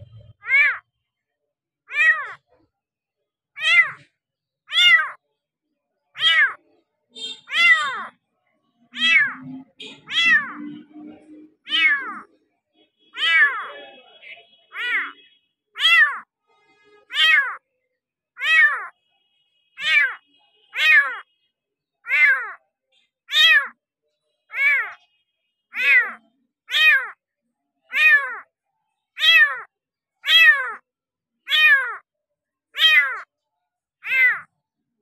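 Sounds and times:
kitten meowing: 0.0s - 0.8s, 1.9s - 2.4s, 3.6s - 4.0s, 4.7s - 5.2s, 6.2s - 6.6s, 7.5s - 8.1s, 8.9s - 10.6s, 11.6s - 12.3s, 13.2s - 13.8s, 14.7s - 15.2s, 15.8s - 16.2s, 17.1s - 17.6s, 18.4s - 18.9s, 19.8s - 20.2s, 20.8s - 21.2s, 22.1s - 22.6s, 23.3s - 23.7s, 24.5s - 25.0s, 25.8s - 27.2s, 27.9s - 28.4s, 29.2s - 30.8s, 31.5s - 32.0s, 32.8s - 33.3s, 34.0s - 34.5s.

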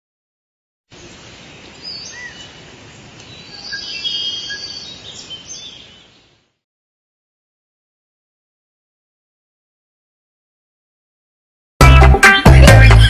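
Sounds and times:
steady hiss: 0.9s - 5.3s
birds chirping and whistling: 1.6s - 2.6s, 3.3s - 6.3s.

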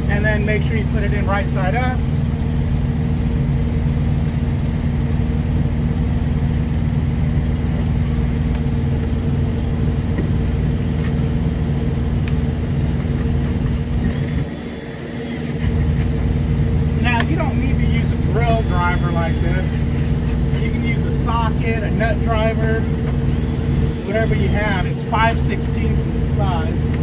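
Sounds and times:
diesel engine humming: 0.0s - 27.0s
cordless drill whirring: 14.0s - 15.7s, 18.4s - 20.4s, 23.3s - 24.8s.

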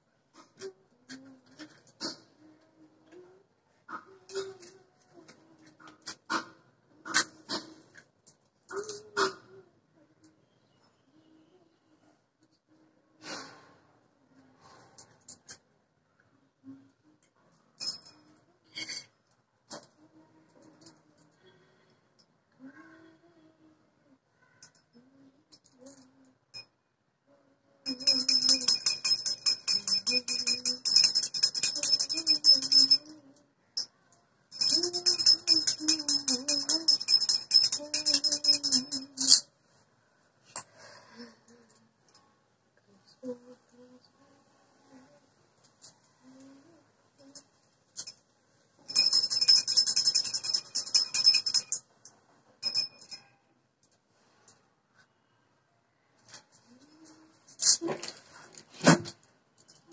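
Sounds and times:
woman singing low tune: 0.6s - 3.5s, 4.1s - 5.9s, 19.8s - 21.8s, 22.6s - 24.2s, 27.3s - 29.0s, 29.6s - 33.5s, 34.6s - 39.4s, 42.9s - 45.3s, 46.2s - 47.4s
small hand bell ringing rapidly: 17.8s - 18.2s, 27.9s - 33.2s, 34.5s - 39.4s, 48.9s - 51.8s, 52.6s - 53.3s.

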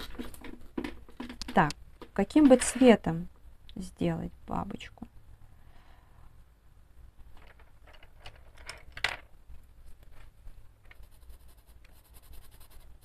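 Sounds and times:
pencil scratching on paper: 11.0s - 13.0s.

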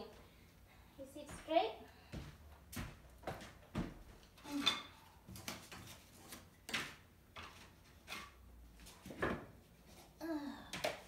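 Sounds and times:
footsteps: 1.2s - 4.3s
floorboards knocking and clunking: 2.2s - 9.6s.

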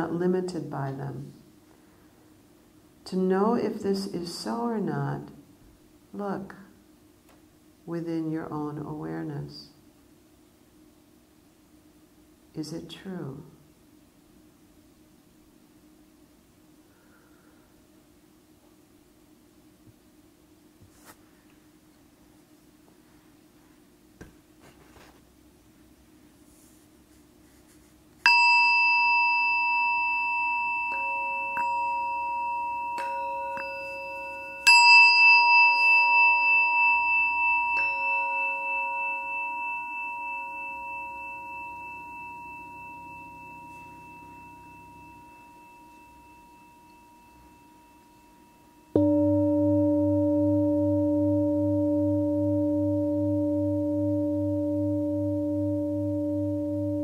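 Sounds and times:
meditation bells ringing: 28.3s - 57.0s
deep bowl tone with wavering beat: 35.8s - 57.0s.

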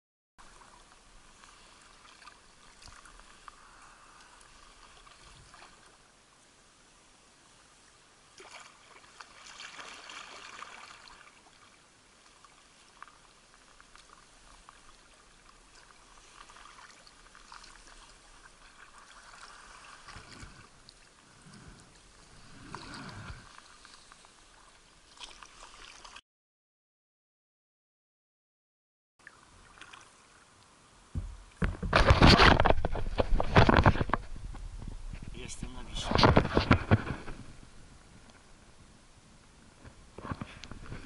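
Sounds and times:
paddle splashing water: 0.4s - 6.1s, 8.3s - 26.2s, 29.2s - 30.5s.

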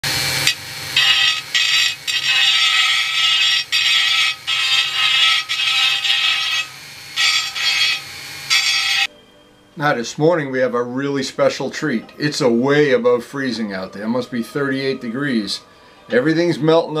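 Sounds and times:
hand sanding metal rim: 0.4s - 9.1s.

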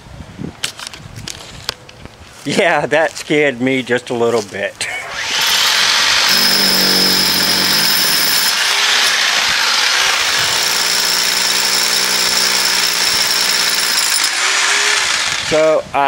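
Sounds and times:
electric drill grinding into concrete: 5.1s - 15.6s.

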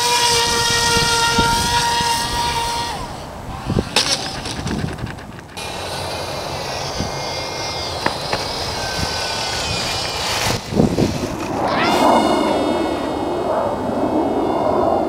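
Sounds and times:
model airplane motor whining: 0.0s - 13.2s
low bumps: 0.0s - 15.0s.

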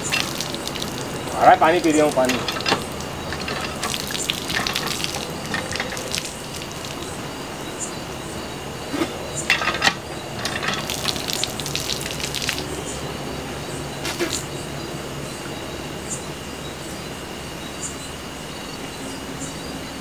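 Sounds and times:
water splashing from hand pump: 0.0s - 7.4s, 9.0s - 12.8s.

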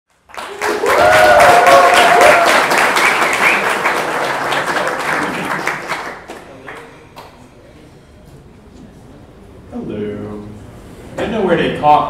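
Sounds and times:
audience applauding: 0.1s - 7.3s
people cheering: 0.3s - 6.2s.

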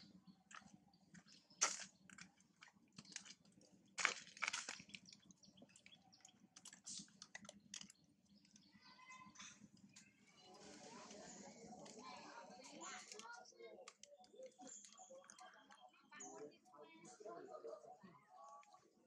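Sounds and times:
faint clicks and crackles: 0.2s - 16.6s
crunchy rustles: 0.5s - 6.0s.

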